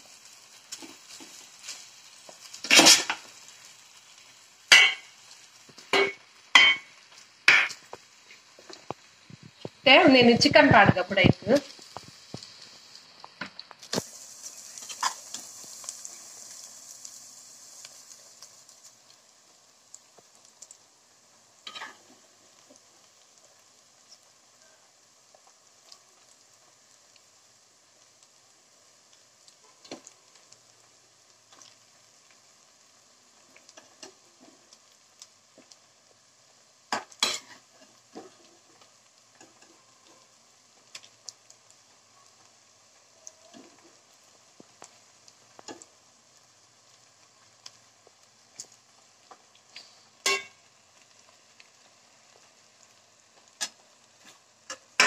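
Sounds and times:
soft sizzle: 0.0 - 55.0
spoon clinking and scraping pot: 5.9 - 6.9, 50.2 - 50.6.

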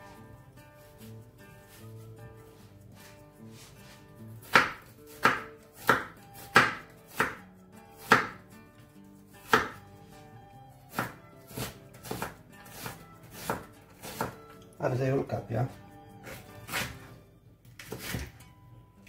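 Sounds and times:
faint background music: 0.0 - 19.0
knife chopping on wooden board: 4.4 - 7.4, 8.0 - 8.4, 9.4 - 9.8, 10.9 - 14.4, 16.2 - 17.1, 17.8 - 18.3.

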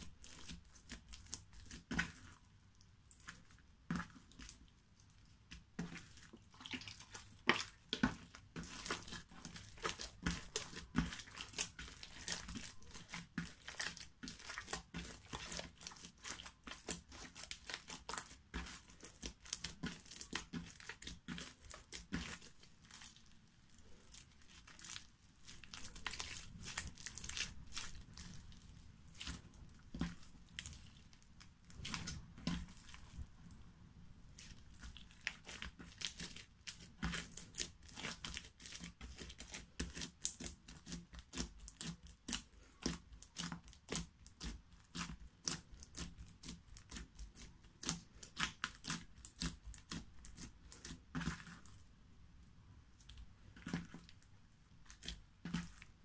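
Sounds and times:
slime crackling and popping: 6.6 - 33.2, 34.4 - 51.7.

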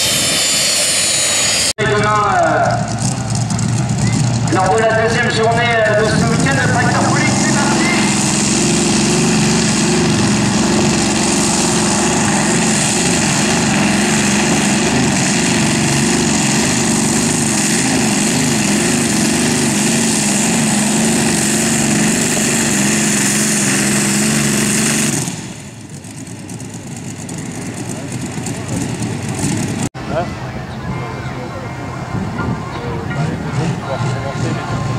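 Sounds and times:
tractor engine running hard: 0.0 - 34.9.

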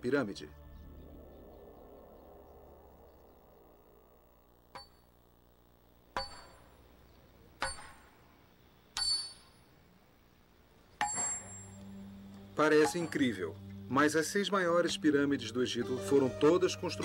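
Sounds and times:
hammer striking metal chisel: 7.6 - 8.1, 11.0 - 11.7.

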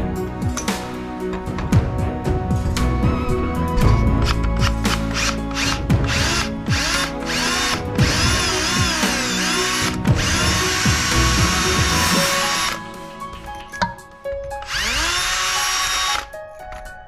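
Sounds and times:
background music: 0.0 - 17.0
cordless drill grinding through metal: 4.2 - 12.9, 14.6 - 16.4.

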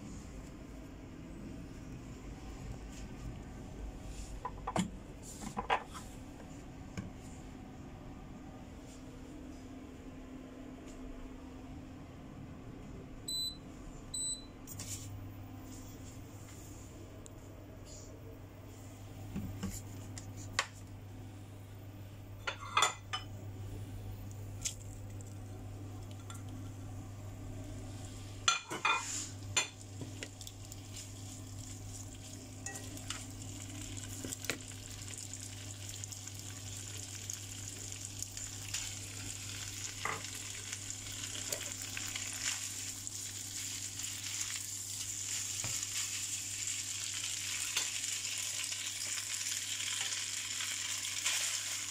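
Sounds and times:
food sizzling in a frying pan: 29.0 - 51.9.

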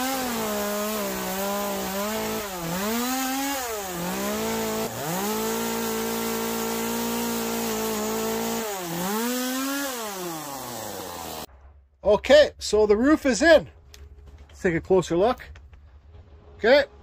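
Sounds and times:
chainsaw cutting wood: 0.0 - 11.5.

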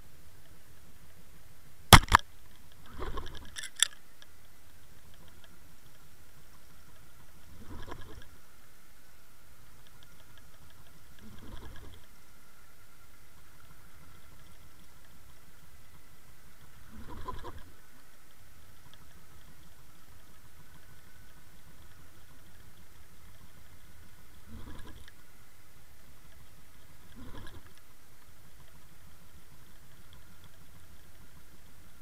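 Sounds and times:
faint thin whine: 0.0 - 32.0
sharp clicks: 2.0 - 2.2, 3.4 - 4.0
short rattling bursts: 3.5 - 4.0.

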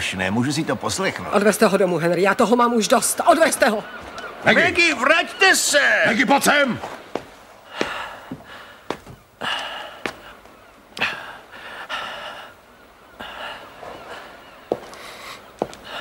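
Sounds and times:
man breathing heavily in gasps: 7.7 - 10.2.

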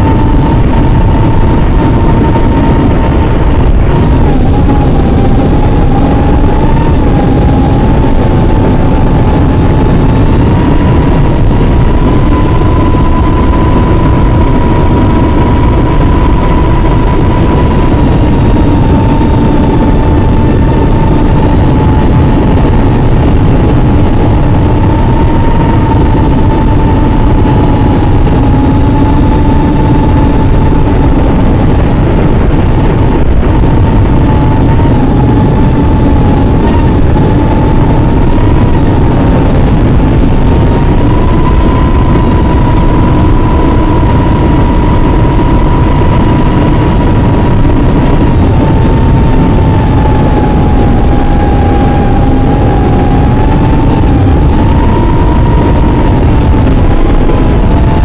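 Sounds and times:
hiss and low rumble: 0.0 - 58.0
racing drone whine: 0.0 - 58.0.

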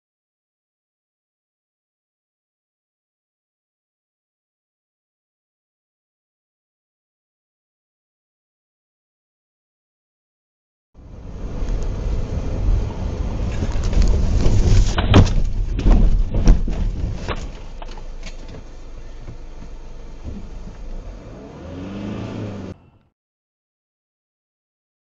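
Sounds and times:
low steady rumble: 11.0 - 21.6
car engine: 11.0 - 23.1
road rumble: 11.0 - 23.1
car crash impacts: 13.4 - 21.0.

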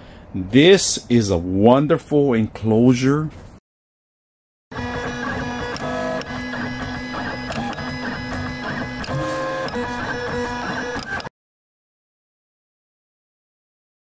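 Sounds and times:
stepper motors whining: 4.7 - 11.3.

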